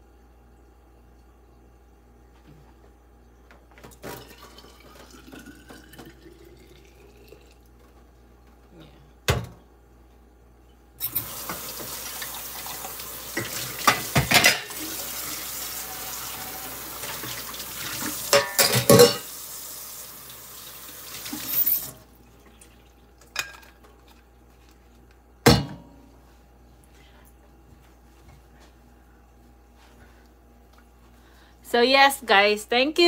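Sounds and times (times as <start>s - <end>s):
dishware clattering: 13.4s - 14.9s, 18.2s - 19.3s, 23.3s - 23.8s.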